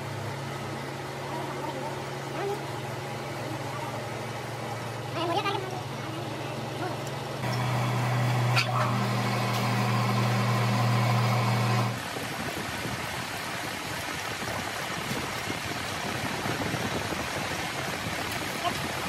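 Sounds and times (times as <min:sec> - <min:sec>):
drill press motor hum: 0:07.4 - 0:12.0.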